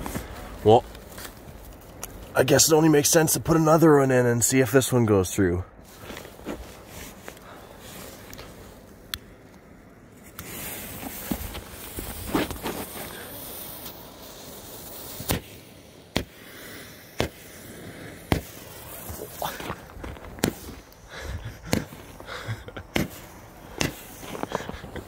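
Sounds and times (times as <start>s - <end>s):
fuse hissing: 10.2s - 25.0s
firework bangs: 10.4s - 20.9s, 22.8s - 24.3s.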